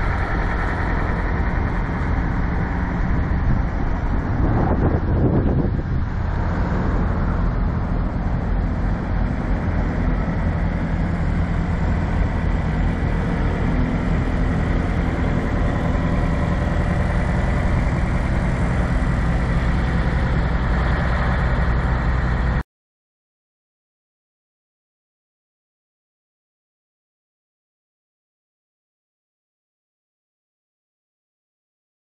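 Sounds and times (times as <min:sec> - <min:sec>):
diesel engine idling: 0:00.0 - 0:22.6.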